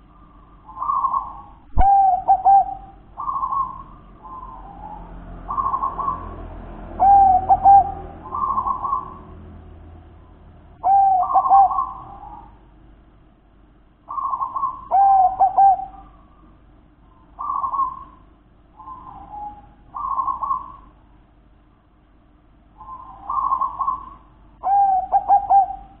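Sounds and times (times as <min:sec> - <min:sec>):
dove cooing: 0:00.0 - 0:09.4, 0:10.8 - 0:12.6, 0:14.1 - 0:16.4, 0:17.2 - 0:21.0, 0:22.8 - 0:26.0.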